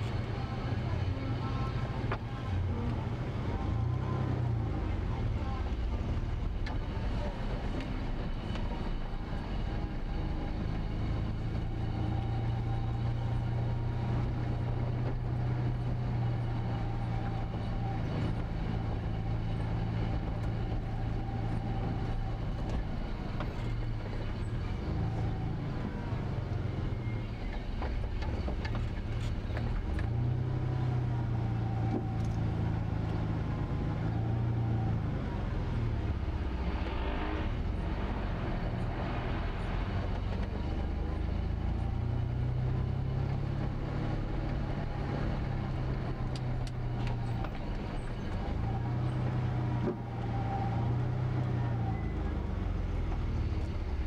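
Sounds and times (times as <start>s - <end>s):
car engine hum: 0.0s - 54.0s.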